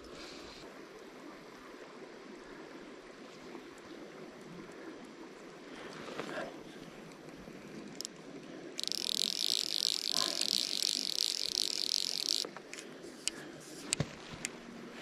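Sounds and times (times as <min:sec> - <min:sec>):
fly reel single clicks: 0:07.9 - 0:08.2, 0:08.8 - 0:14.6
fly reel drag buzzing: 0:08.8 - 0:13.4.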